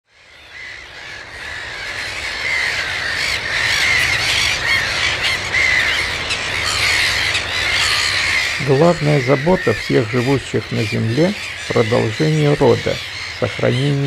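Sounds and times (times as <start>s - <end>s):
gulls calling: 0.1s - 14.0s.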